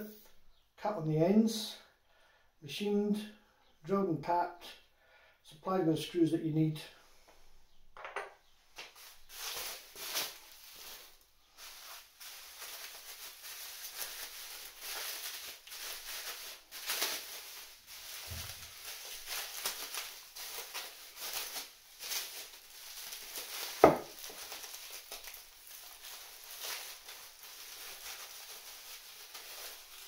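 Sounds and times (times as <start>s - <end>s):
bubble wrap crinkling: 8.8s - 30.0s.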